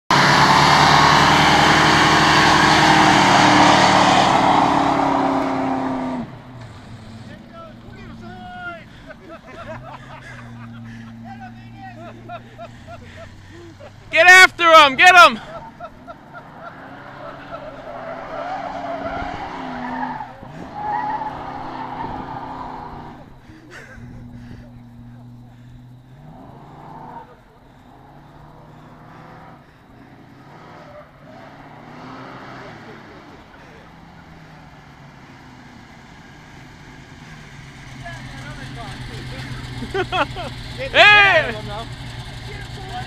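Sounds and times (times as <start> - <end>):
car engine at high revs: 0.1 - 43.0
tyres squealing: 0.2 - 34.5.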